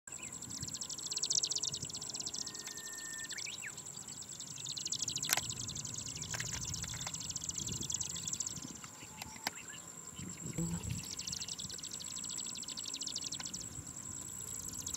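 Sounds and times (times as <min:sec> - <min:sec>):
bird whistle sliding upward: 0:02.4 - 0:03.6
sharp click: 0:05.2 - 0:05.6.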